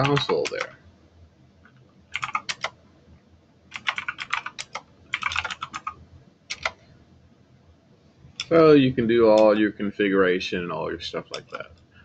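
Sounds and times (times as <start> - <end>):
computer keyboard typing: 0.0 - 0.8, 2.1 - 2.8, 3.7 - 6.8, 9.3 - 9.6, 11.2 - 11.9.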